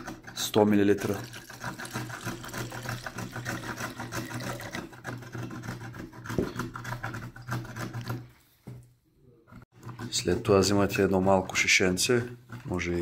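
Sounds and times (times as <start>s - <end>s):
liquid glugging from a bottle: 1.0s - 5.0s.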